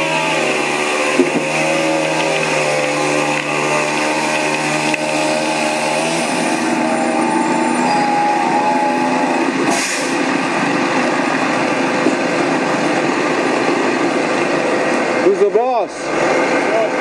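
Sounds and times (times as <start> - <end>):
truck engine running loudly: 0.0 - 17.0
short hiss: 9.7 - 10.2.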